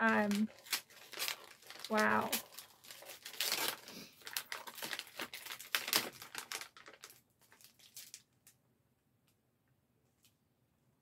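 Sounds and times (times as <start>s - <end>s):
gift wrapping paper crinkling: 0.0s - 8.6s.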